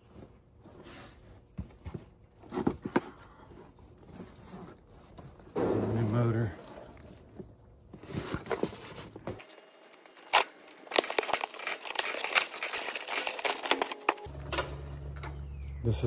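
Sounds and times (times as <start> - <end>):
cardboard crinkling and scraping: 0.0 - 6.5, 7.1 - 14.3
packing tape tearing: 8.2 - 14.3
sharp cardboard cracks: 10.2 - 14.3.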